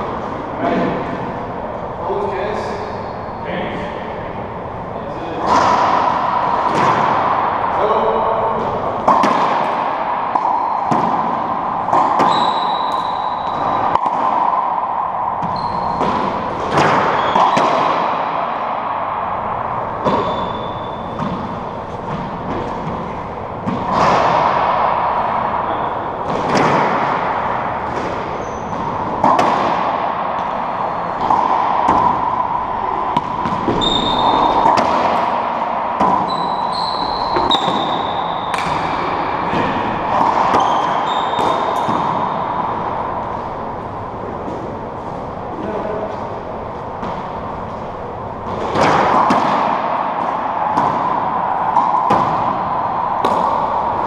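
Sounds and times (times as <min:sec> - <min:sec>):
racquetball hits echoing: 0:00.0 - 0:54.0
sneakers squeaking on hardwood: 0:12.0 - 0:13.7, 0:15.4 - 0:16.2, 0:17.1 - 0:17.6, 0:20.0 - 0:21.3, 0:28.3 - 0:29.0, 0:33.6 - 0:34.7, 0:36.2 - 0:38.7, 0:40.6 - 0:41.9.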